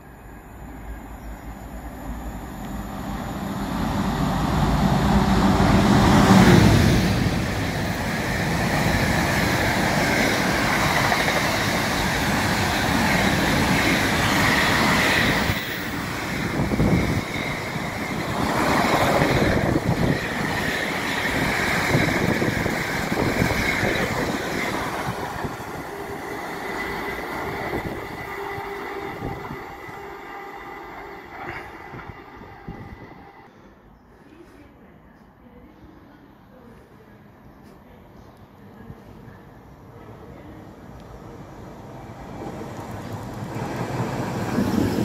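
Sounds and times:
faint high whine: 0:00.0 - 0:03.7
diesel locomotive passing: 0:00.0 - 0:33.5, 0:39.0 - 0:45.0.

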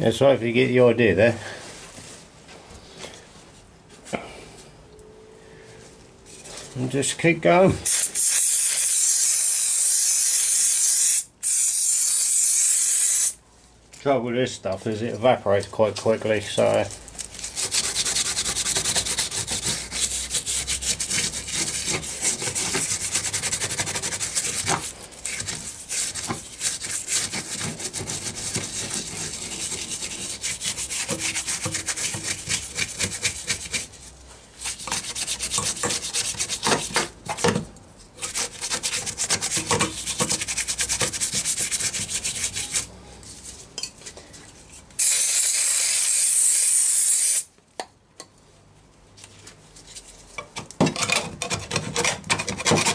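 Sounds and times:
stiff brush scrubbing metal: 0:17.4 - 0:37.1, 0:38.2 - 0:42.9
aerosol spray hiss: 0:45.0 - 0:47.5.

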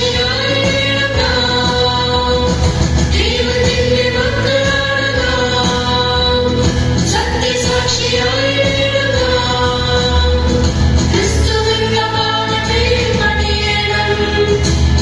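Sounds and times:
group of voices singing: 0:00.0 - 0:15.0
instrumental accompaniment with beat: 0:00.0 - 0:15.0.

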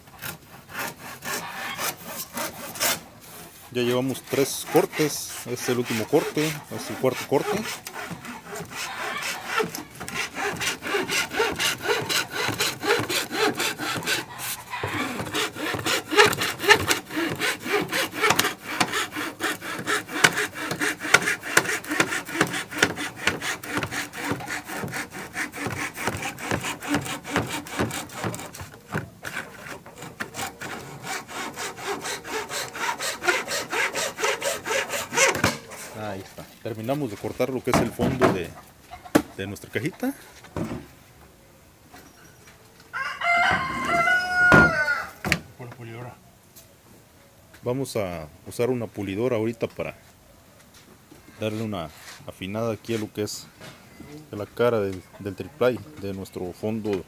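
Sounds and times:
hacksaw cutting plywood: 0:00.0 - 0:36.1.

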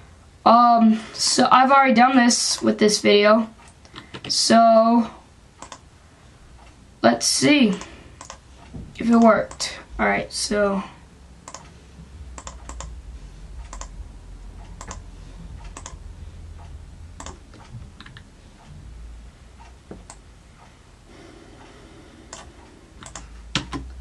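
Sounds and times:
steady low hum: 0:00.0 - 0:24.0
mouse and keyboard clicks: 0:07.7 - 0:08.4, 0:12.4 - 0:12.9, 0:13.7 - 0:13.9, 0:14.8 - 0:15.0, 0:15.7 - 0:16.0, 0:22.3 - 0:23.9.

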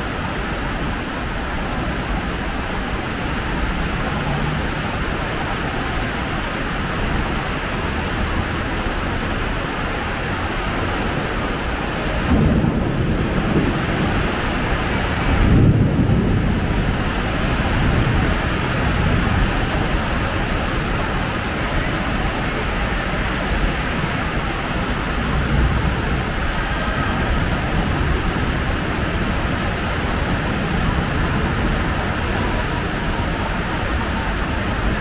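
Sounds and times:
steady rain hiss: 0:00.0 - 0:35.0
low rumble: 0:24.0 - 0:32.5.

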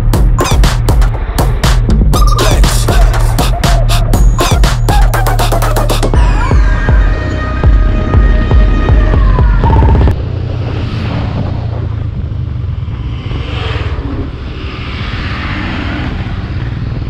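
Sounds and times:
wind and road noise: 0:00.0 - 0:04.2, 0:06.1 - 0:17.0
motorcycle engine cruising: 0:03.2 - 0:17.0
truck rushing past: 0:06.2 - 0:17.0.

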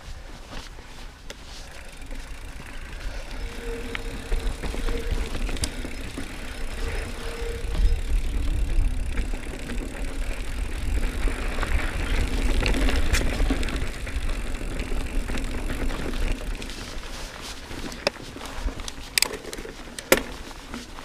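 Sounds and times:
bike clicks and rattles: 0:00.3 - 0:21.0
tyres rumbling on dirt: 0:01.6 - 0:18.0
wind on microphone: 0:02.4 - 0:14.5.

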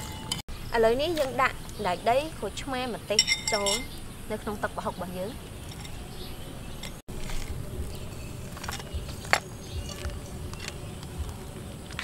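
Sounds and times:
spoon clinking against bowl: 0:03.2 - 0:03.9.

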